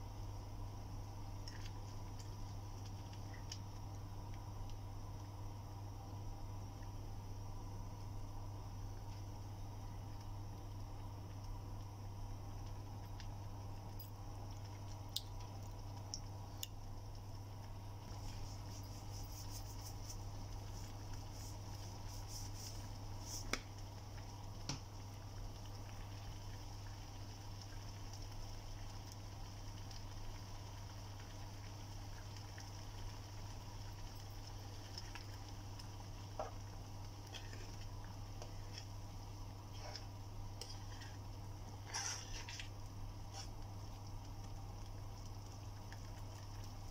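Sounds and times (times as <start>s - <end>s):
curry bubbling in a pan: 0.0s - 46.9s
low hum and hiss: 0.0s - 46.9s
spatula stirring thick gravy: 36.4s - 43.8s.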